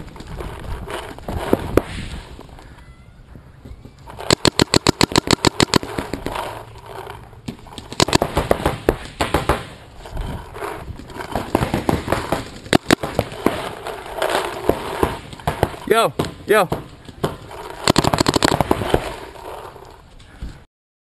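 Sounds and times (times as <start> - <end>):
paintball marker firing: 4.2 - 6.3, 7.5 - 9.8, 11.4 - 13.7, 15.0 - 19.2.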